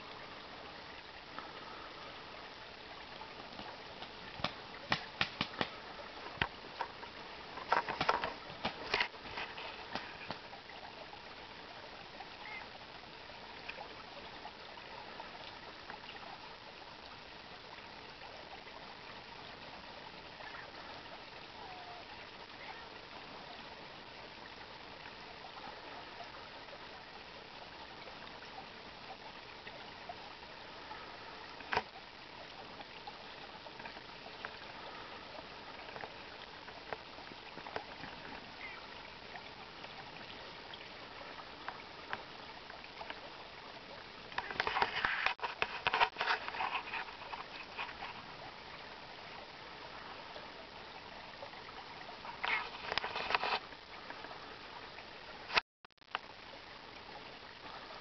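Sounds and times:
creek trickling over gravel: 0.0 - 58.0
ducks splashing and flapping: 3.5 - 10.5.

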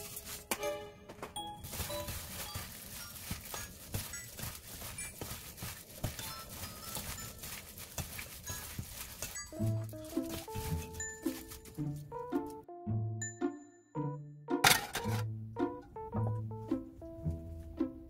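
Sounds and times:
chives rustling in bowl: 0.0 - 0.5, 1.6 - 11.8
faint music: 0.0 - 13.2.

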